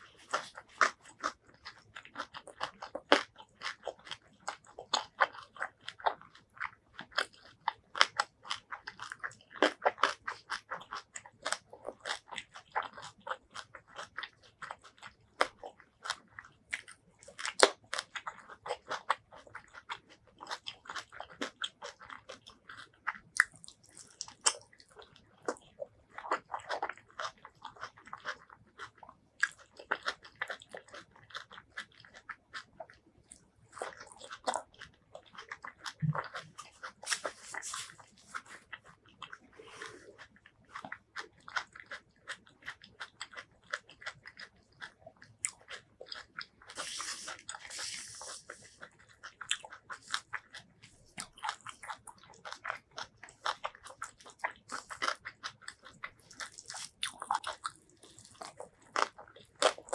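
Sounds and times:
close chewing: 0:00.0 - 0:59.9
fingers squishing rice: 0:33.7 - 0:59.9.

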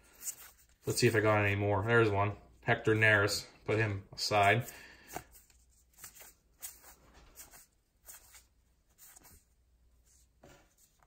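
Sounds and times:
cards being leafed through: 0:00.0 - 0:01.2, 0:04.3 - 0:11.0.

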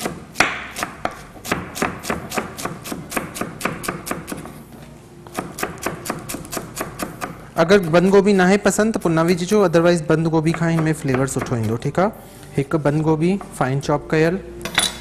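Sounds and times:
knife chopping on wooden board: 0:00.0 - 0:04.5, 0:05.3 - 0:08.1.

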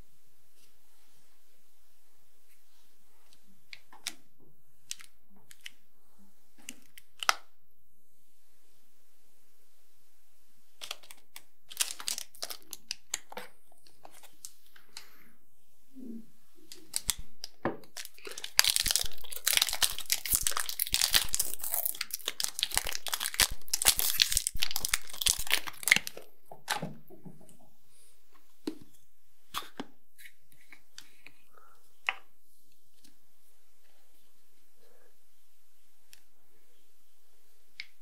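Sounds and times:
wrapper crinkling and tearing: 0:10.8 - 0:13.3, 0:16.8 - 0:26.3.

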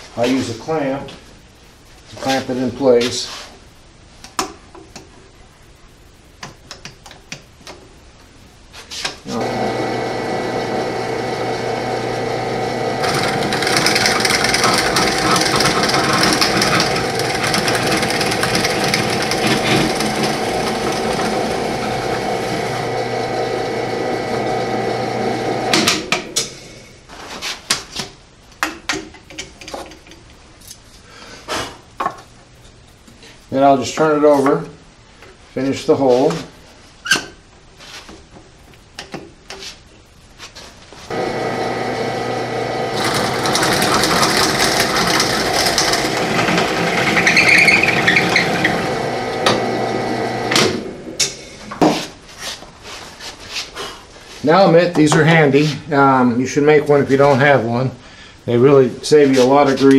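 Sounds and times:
drill bit cutting wood: 0:09.3 - 0:26.0, 0:41.1 - 0:51.0
drill press motor humming: 0:09.3 - 0:26.6, 0:41.1 - 0:51.4.

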